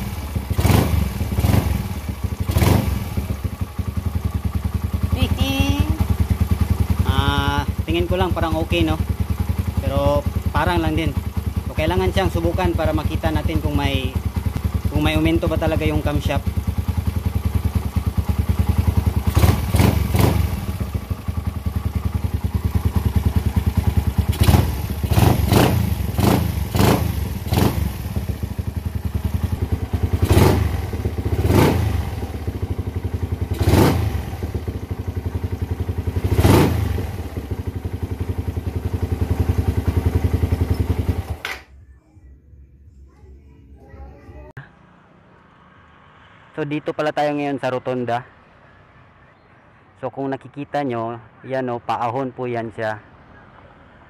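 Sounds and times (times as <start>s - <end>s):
motorcycle engine revving over idle: 0.0s - 41.6s.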